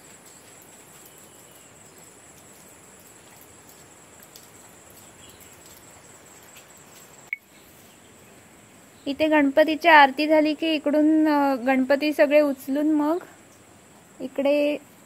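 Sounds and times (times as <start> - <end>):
insect chorus buzzing: 0.0 - 9.1.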